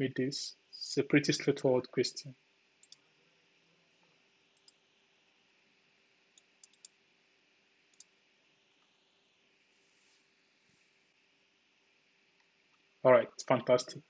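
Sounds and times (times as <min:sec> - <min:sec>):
computer mouse clicks: 0:02.8 - 0:03.0, 0:04.5 - 0:04.8, 0:06.4 - 0:07.0, 0:07.9 - 0:08.1.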